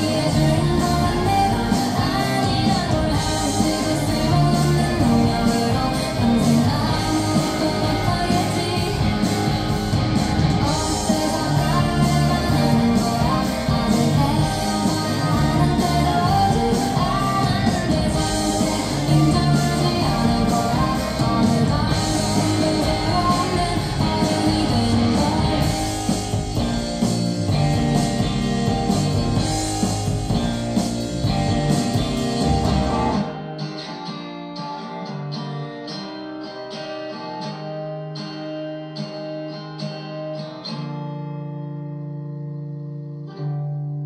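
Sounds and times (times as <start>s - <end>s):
band music over loudspeakers: 0.0s - 33.5s
plucked guitar notes: 0.0s - 44.0s.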